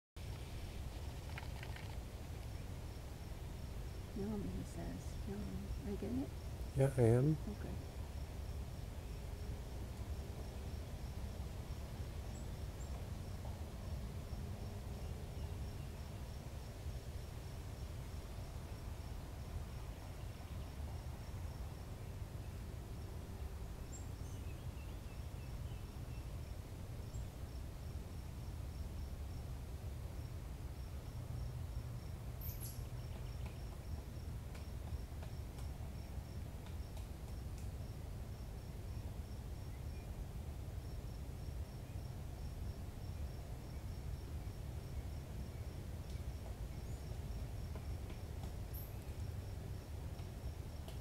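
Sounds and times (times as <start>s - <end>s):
low background rumble: 0.2s - 50.9s
insect ticking: 0.3s - 2.6s, 32.5s - 37.9s
insect chirping: 0.3s - 51.0s
faint clicks: 1.2s - 2.6s, 36.6s - 37.7s
small bird chirp: 32.4s - 33.6s.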